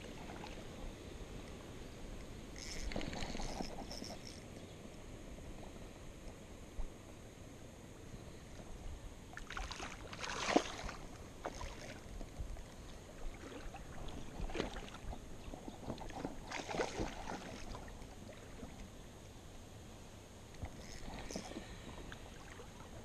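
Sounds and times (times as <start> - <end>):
fish splashing in river water: 9.4 - 12.0, 16.0 - 18.0.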